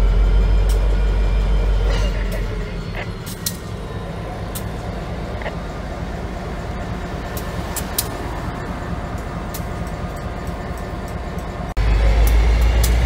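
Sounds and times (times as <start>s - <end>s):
locomotive diesel engine running: 0.0s - 13.0s
high clicks from moving train: 0.6s - 1.1s, 1.8s - 3.8s, 4.4s - 5.6s, 6.9s - 13.0s.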